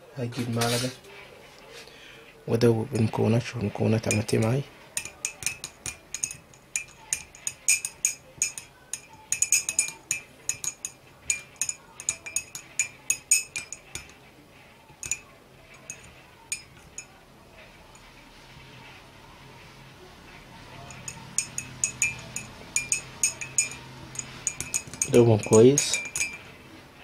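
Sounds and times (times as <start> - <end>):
teaspoon clinking in glass mug: 4.0 - 4.4, 5.0 - 14.2, 15.0 - 17.2, 20.8 - 26.5.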